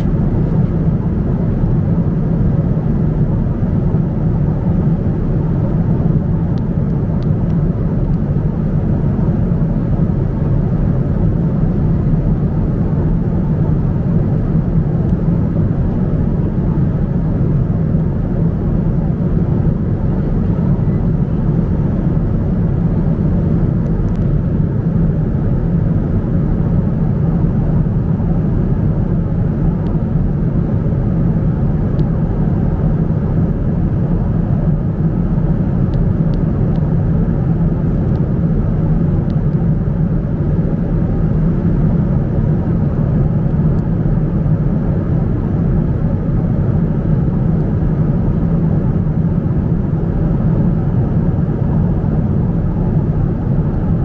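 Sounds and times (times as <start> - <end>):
airliner cabin low rumble: 0.0 - 54.0.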